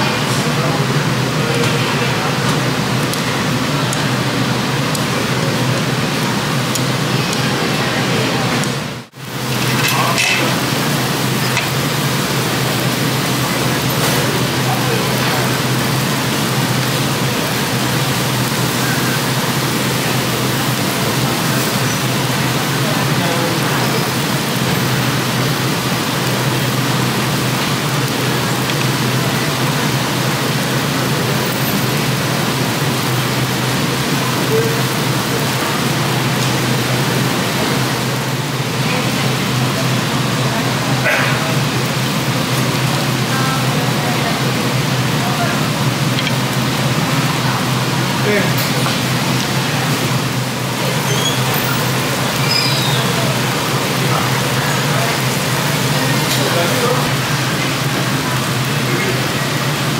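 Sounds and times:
meat sizzling on grill pan: 9.2 - 39.1.

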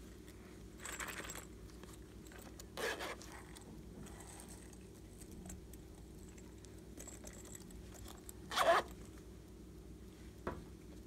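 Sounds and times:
zipper rasp: 2.8 - 3.6, 8.5 - 9.0.

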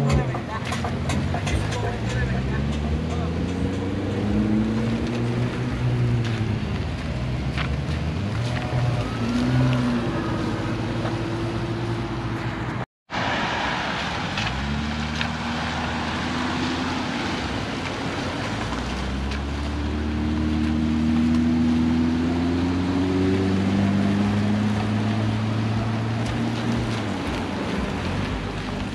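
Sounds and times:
car engines revving: 0.0 - 28.9
tyres hissing on wet road: 13.1 - 28.9.

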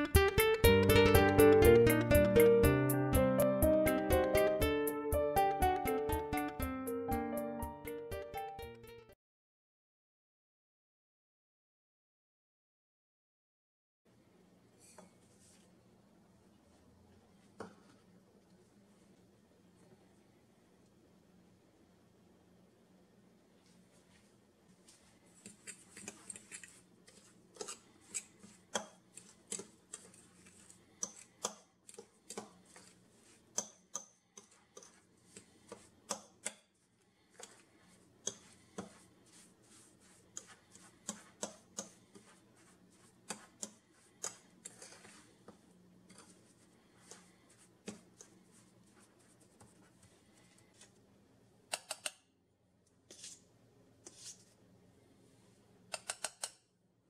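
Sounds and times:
fork scraping ceramic bowl: 25.4 - 33.0, 34.4 - 35.9, 38.3 - 45.3, 46.1 - 48.3.

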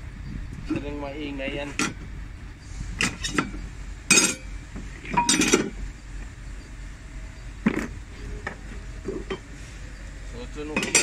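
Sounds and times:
metal brake discs clinking: 3.0 - 5.8, 10.6 - 11.0.

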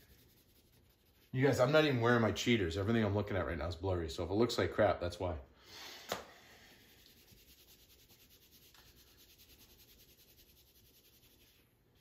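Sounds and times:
pencil scratching on paper: 0.0 - 2.0, 7.1 - 12.0.

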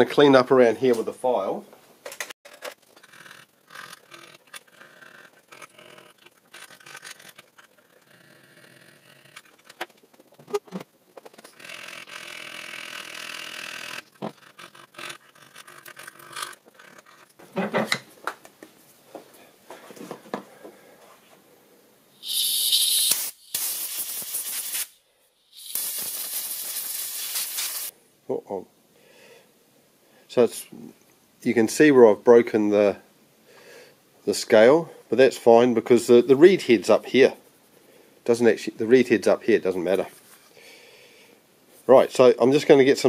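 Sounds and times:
aerosol can spraying: 22.2 - 27.9.

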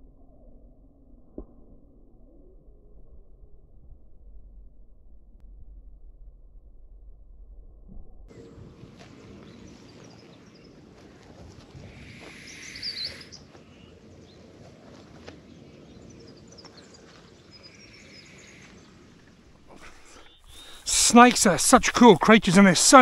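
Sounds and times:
low rumble of wind: 0.0 - 12.5, 13.2 - 23.0
bird chirps: 12.3 - 13.9, 19.7 - 23.0.

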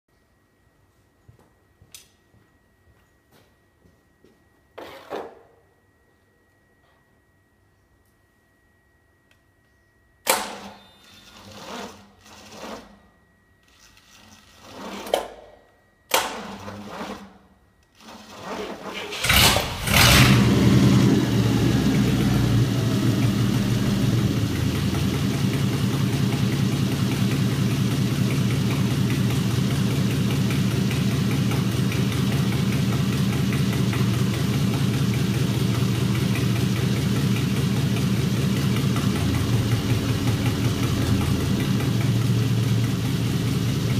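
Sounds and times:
engine cranking: 18.0 - 43.9
car engine idling: 19.2 - 43.9.

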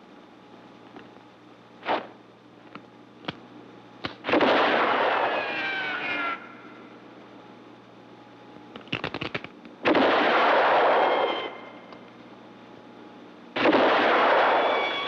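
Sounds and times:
gunshots ringing: 1.8 - 2.2, 4.2 - 6.1, 9.8 - 11.9, 13.6 - 15.0.

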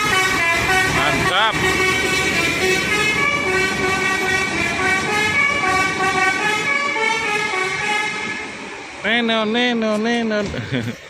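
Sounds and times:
musical bus air horns: 0.0 - 8.6
bus engine: 0.0 - 11.0.

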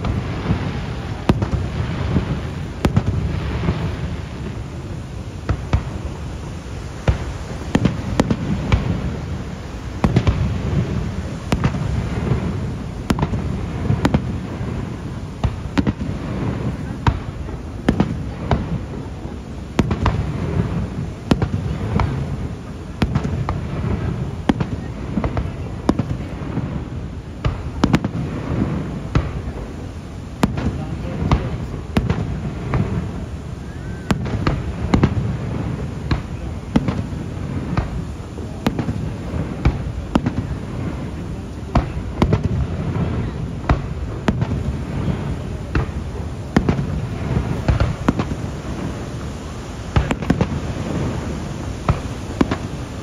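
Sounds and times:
fireworks bursting: 0.0 - 53.0
low background noise: 0.0 - 53.0.

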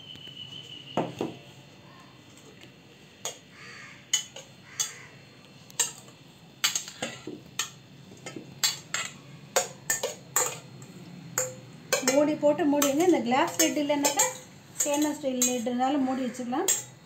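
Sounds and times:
metal spatula scraping steel pot: 11.4 - 17.0.

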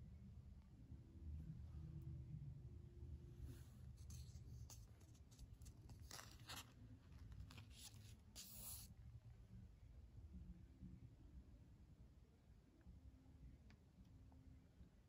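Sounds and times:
paper page rustling: 3.9 - 8.9.

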